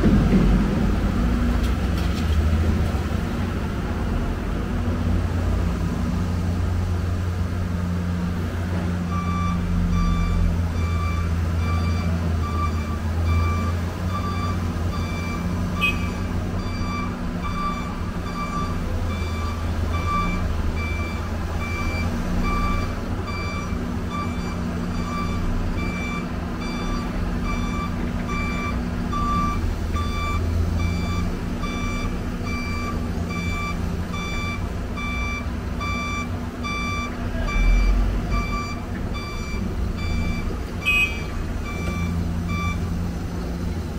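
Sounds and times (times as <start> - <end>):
diesel engine running: 0.0 - 43.9
back-up alarm beeping: 9.1 - 42.9.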